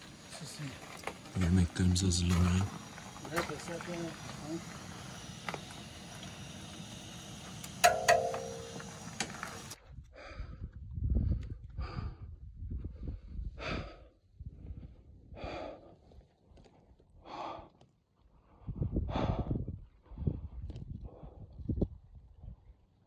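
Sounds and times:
steady hiss: 0:00.0 - 0:09.8
wind rumbling on microphone: 0:09.6 - 0:15.6, 0:18.4 - 0:23.0
person breathing hard: 0:10.0 - 0:16.2, 0:17.2 - 0:17.8, 0:18.4 - 0:21.7.

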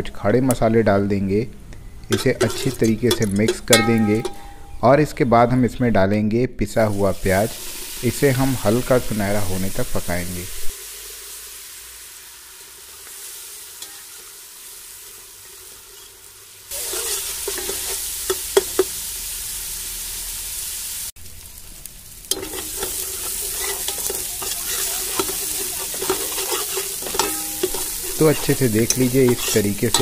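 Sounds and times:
metal ladle scraping pot: 0:02.0 - 0:04.8, 0:15.9 - 0:18.9, 0:22.3 - 0:30.0
onion paste sizzling in oil: 0:06.8 - 0:30.0.

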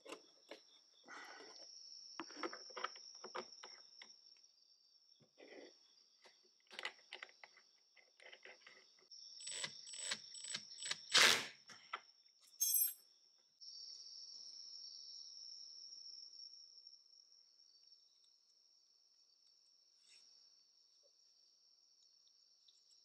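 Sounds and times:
crickets chirring: 0:00.0 - 0:23.0
scrape: 0:20.0 - 0:20.3.

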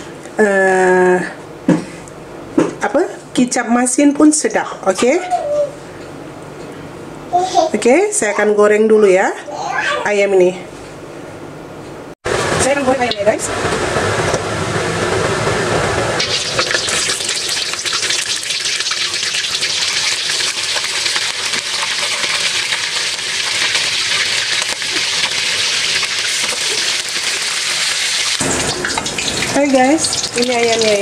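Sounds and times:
chicken sizzling in hot oil: 0:16.2 - 0:31.0.

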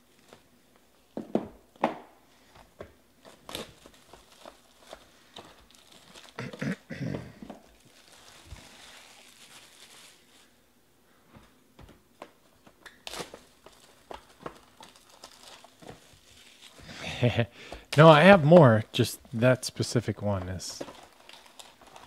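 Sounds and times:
shrink-wrap crinkling: 0:03.2 - 0:06.6, 0:07.3 - 0:10.6, 0:12.8 - 0:22.0.

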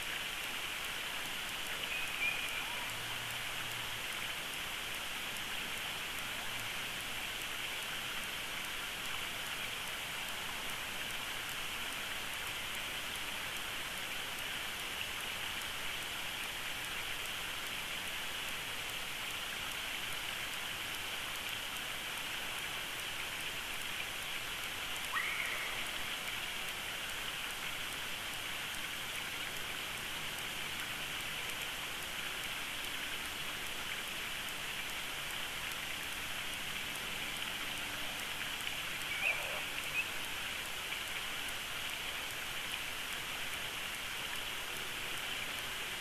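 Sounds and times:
steady outdoor hiss: 0:00.0 - 0:46.0
faint bird chirp: 0:01.7 - 0:03.1, 0:25.1 - 0:26.1, 0:39.0 - 0:40.3.

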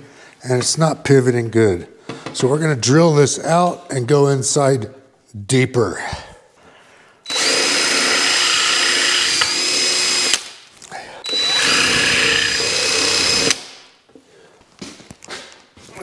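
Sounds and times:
electric drill drilling rivet: 0:07.3 - 0:10.5, 0:11.2 - 0:13.7.

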